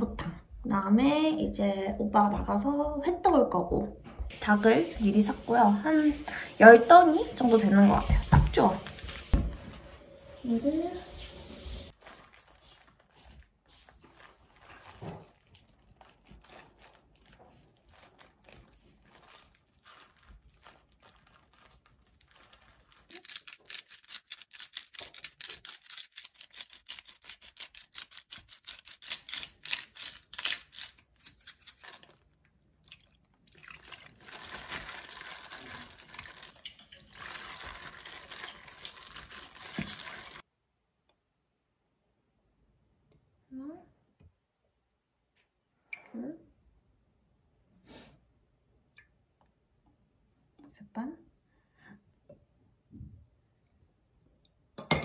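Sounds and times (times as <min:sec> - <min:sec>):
liquid being stirred by hand: 0:04.3 - 0:40.4.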